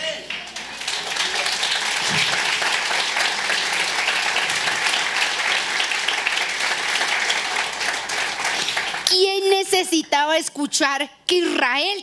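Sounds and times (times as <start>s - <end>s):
congregation applauding: 0.0s - 9.3s.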